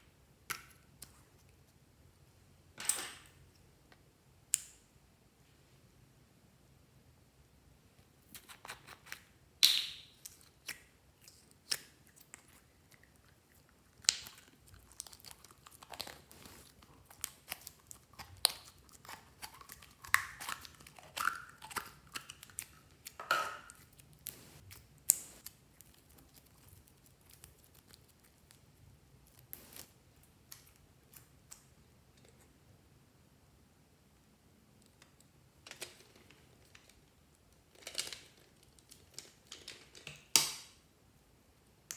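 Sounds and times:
slime squeezing with sticky crackling: 10.2 - 31.6.

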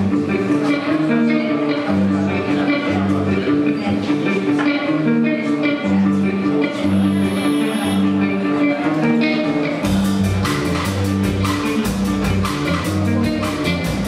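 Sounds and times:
electric guitar riff: 0.0 - 14.0
drum kit with cymbal strikes: 9.8 - 14.0.

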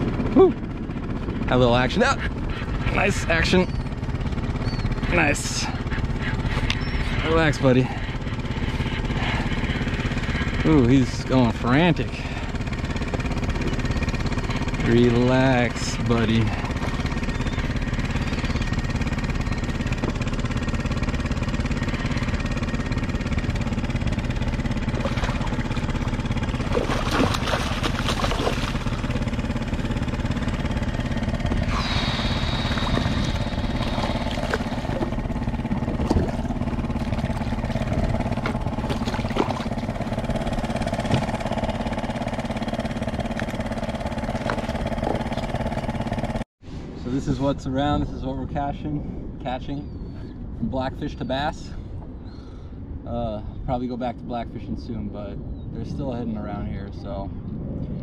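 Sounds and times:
engine drone: 0.0 - 58.0
fish splashing at surface: 24.9 - 29.1, 31.8 - 35.2, 36.0 - 39.9.

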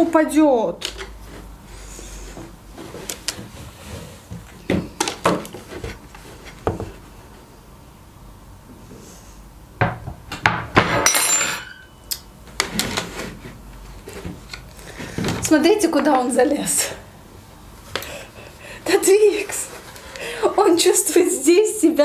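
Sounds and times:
dishes knocking and clattering: 9.8 - 11.9.

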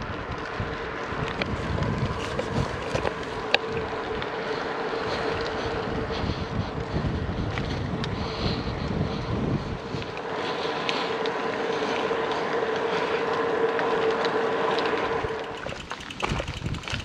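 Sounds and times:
wind on microphone: 0.0 - 10.2, 15.1 - 17.0
steady humming tone: 0.0 - 17.0.

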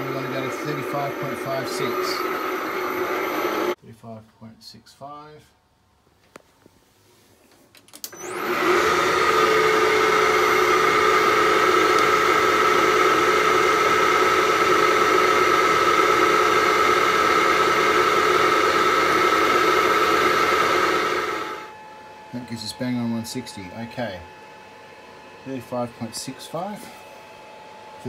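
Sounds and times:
metal lathe running: 0.0 - 3.8, 8.2 - 21.7
motor whine: 0.0 - 3.8, 8.1 - 28.0.

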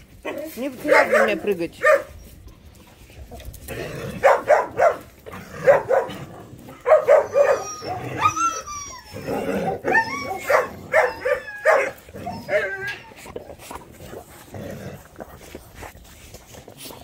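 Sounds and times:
dogs yelping and whining: 0.1 - 2.8, 4.1 - 14.5
dogs barking: 0.2 - 2.2, 4.2 - 8.6, 9.4 - 13.0.

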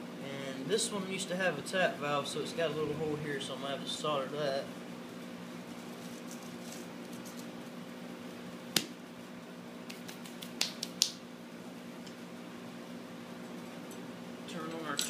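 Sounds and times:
steady low hum: 0.0 - 7.1.

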